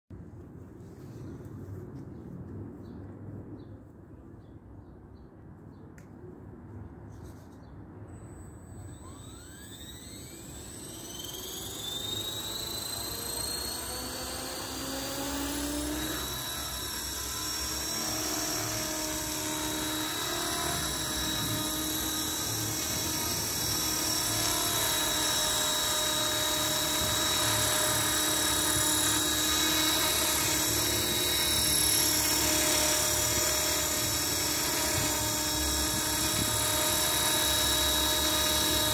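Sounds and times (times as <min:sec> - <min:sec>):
model helicopter motor whine: 0:08.1 - 0:38.9.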